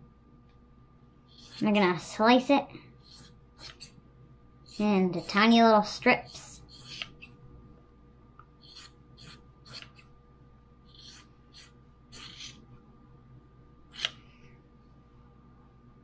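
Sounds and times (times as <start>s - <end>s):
scissors cutting fabric: 3.1s - 3.9s, 6.7s - 7.3s, 8.7s - 10.1s, 10.9s - 12.6s.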